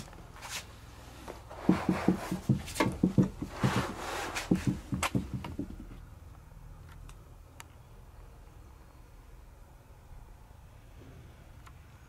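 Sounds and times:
metal box knocking and scraping: 1.6 - 6.0.

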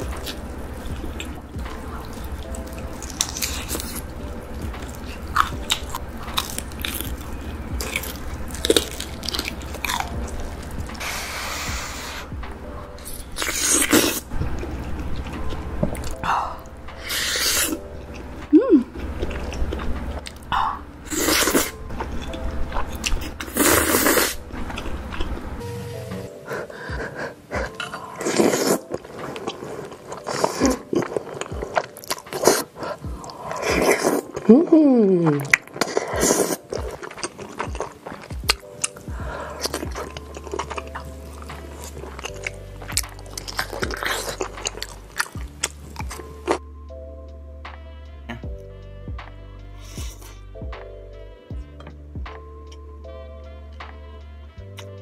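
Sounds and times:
crunchy chewing: 0.0 - 12.3, 13.0 - 17.8, 27.6 - 34.5, 35.4 - 46.6.

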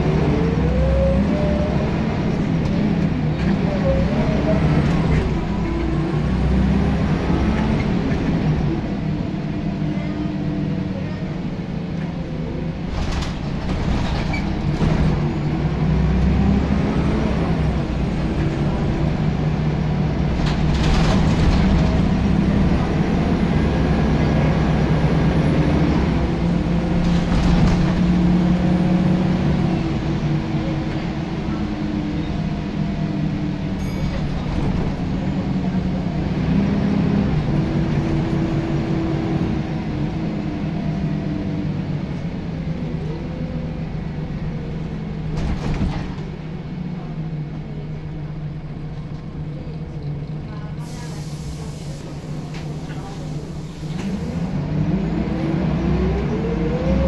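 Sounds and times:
bus diesel engine under load: 0.0 - 57.0.

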